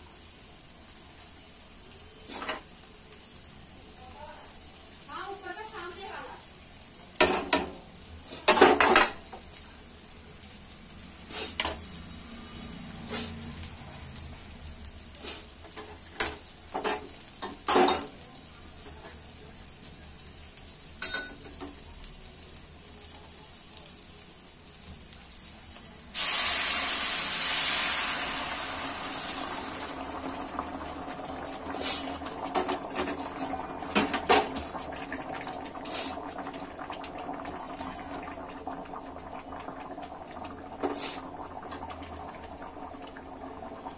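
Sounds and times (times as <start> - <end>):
food sizzling in a pan: 0.0 - 43.9
water poured into hot pan: 0.0 - 43.9
loud hiss: 26.2 - 29.7
bubbling: 28.8 - 43.9.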